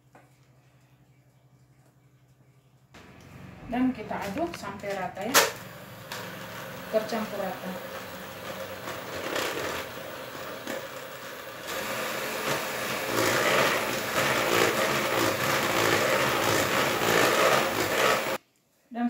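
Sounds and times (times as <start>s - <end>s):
electric hand mixer whisking batter: 5.6s - 18.4s.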